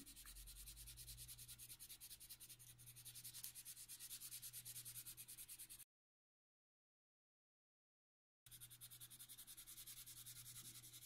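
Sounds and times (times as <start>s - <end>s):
pencil rubbing on paper: 0.0s - 5.8s, 8.5s - 11.0s.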